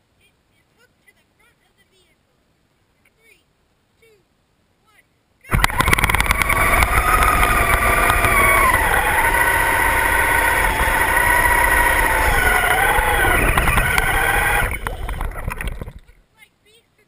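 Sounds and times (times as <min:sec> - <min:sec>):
toy car motors whining: 0:05.5 - 0:16.2.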